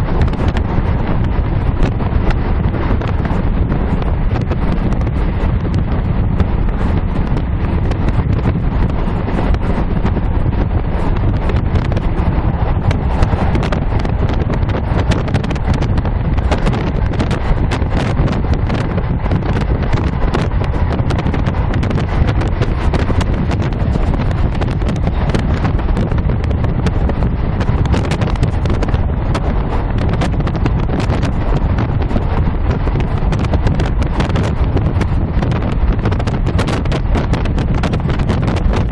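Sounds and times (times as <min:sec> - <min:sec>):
train low rumble: 0:00.0 - 0:38.9
wheels clicking on track: 0:00.0 - 0:38.9.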